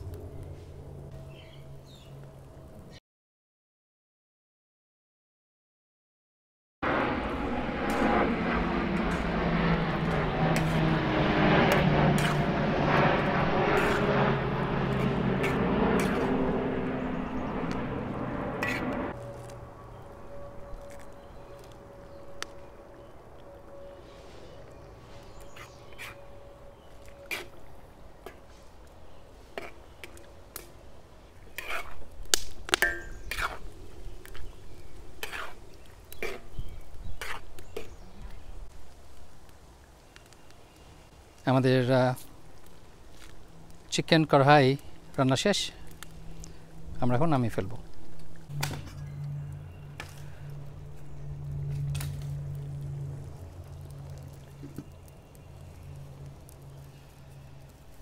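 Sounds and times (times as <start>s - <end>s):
engine drone: 0.0s - 3.0s, 6.8s - 31.4s, 42.3s - 58.0s
metal spatula scraping a wok: 12.2s - 12.4s, 13.8s - 14.1s, 15.0s - 16.3s, 18.6s - 18.9s, 31.5s - 32.1s, 32.8s - 33.7s, 35.2s - 35.6s.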